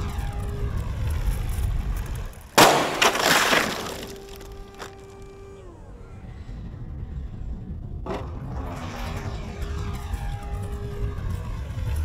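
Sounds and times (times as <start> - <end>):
model crashing into ground: 2.6 - 4.9.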